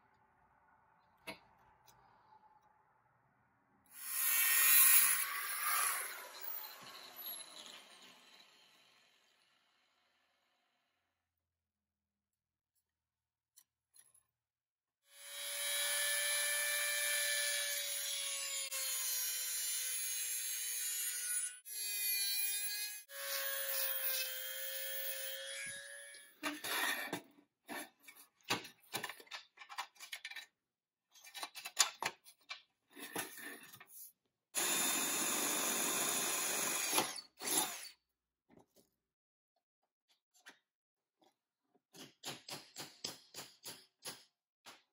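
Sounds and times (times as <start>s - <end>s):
cordless drill boring through steel: 3.9s - 9.7s, 34.6s - 38.0s
rotary tool grinding metal: 4.0s - 8.8s, 17.0s - 27.1s.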